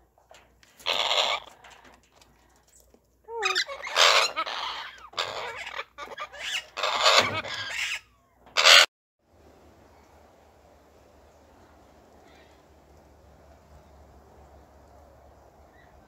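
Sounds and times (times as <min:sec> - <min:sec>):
parrots squawking harshly: 0:00.8 - 0:01.5, 0:03.4 - 0:08.9.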